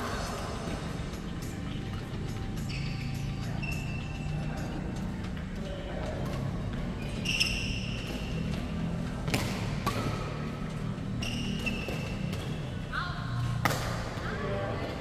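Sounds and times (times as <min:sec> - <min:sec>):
shoes squeaking on wooden floor: 0:02.4 - 0:04.4, 0:07.0 - 0:08.8
racket striking shuttlecock: 0:07.4 - 0:08.6, 0:09.2 - 0:12.7, 0:13.4 - 0:14.2.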